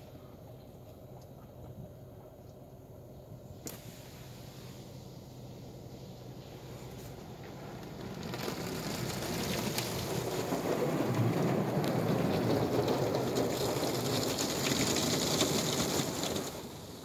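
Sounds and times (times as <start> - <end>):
water jets spraying on car: 3.7 - 17.0.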